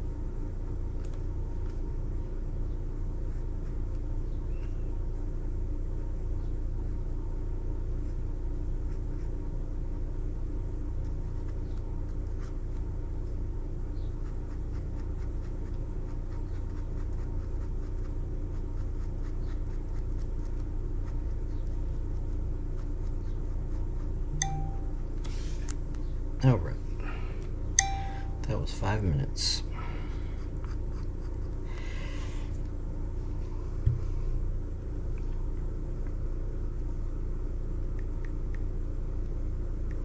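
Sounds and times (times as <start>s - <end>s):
low background hum: 0.0s - 40.0s
brief low tone: 24.3s - 25.0s, 27.8s - 28.5s.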